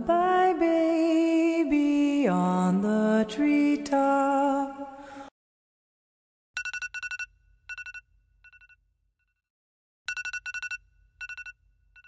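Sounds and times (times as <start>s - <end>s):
phone alarm electronic trill: 6.6s - 8.7s, 10.1s - 11.6s.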